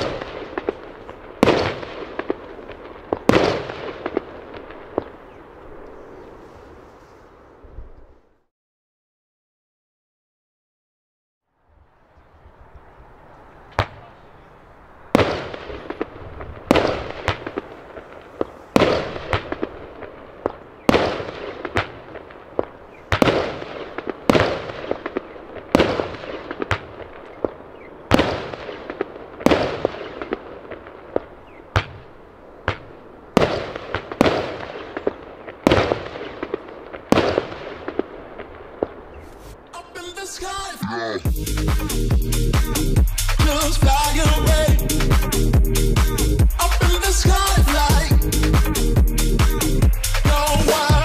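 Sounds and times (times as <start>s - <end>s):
small firework pops: 0.0s - 5.2s, 15.2s - 39.6s
firework bangs: 0.0s - 6.3s, 13.6s - 51.0s.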